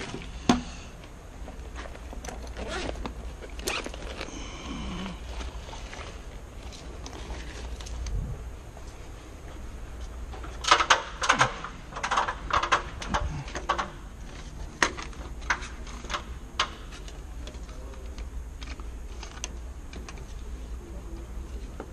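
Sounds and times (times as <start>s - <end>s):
clicks and rattles of wires and plug: 0.0s - 4.4s, 5.3s - 8.2s, 10.0s - 20.5s.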